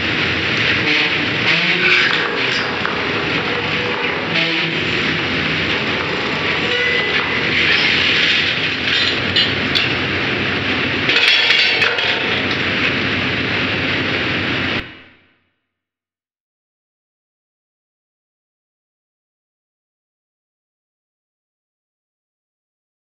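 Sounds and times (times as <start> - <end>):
machinery running: 0.0 - 15.3
metal clanks of pipe handling: 7.2 - 10.0, 11.1 - 12.6.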